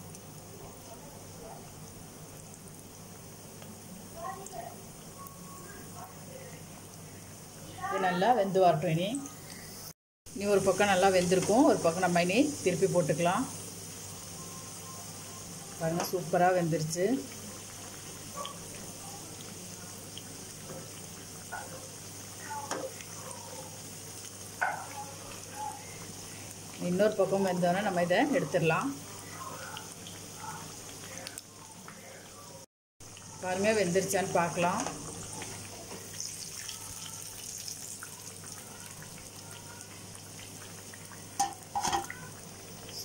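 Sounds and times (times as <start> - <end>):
deep-frying sizzle in hot oil: 0.0 - 43.0
metal spoon clinking on plate: 41.4 - 42.1
metal ladle knocking against pan: 41.4 - 42.2.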